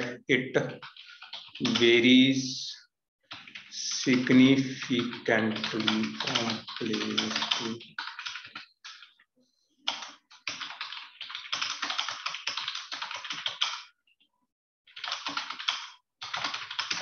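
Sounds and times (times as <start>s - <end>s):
fast typing on keyboard: 0.6s - 2.1s, 3.3s - 9.2s, 9.9s - 14.0s, 14.9s - 17.0s.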